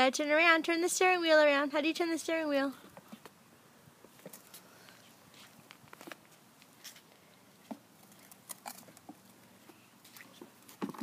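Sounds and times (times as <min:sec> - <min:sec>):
plastic toy car on concrete: 0:08.0 - 0:09.4.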